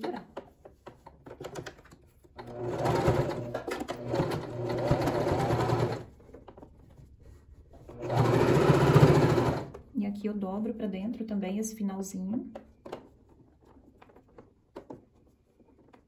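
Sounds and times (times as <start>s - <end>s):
sewing machine stitching: 2.4s - 6.1s, 7.9s - 9.8s.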